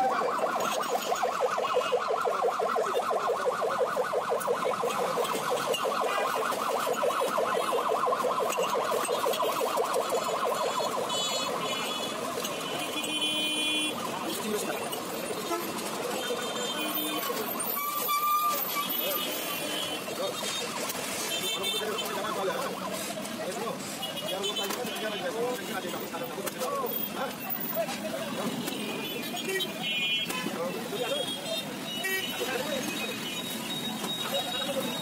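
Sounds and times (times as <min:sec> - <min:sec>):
warbling electronic siren: 0:00.0 - 0:13.0, 0:13.8 - 0:21.2.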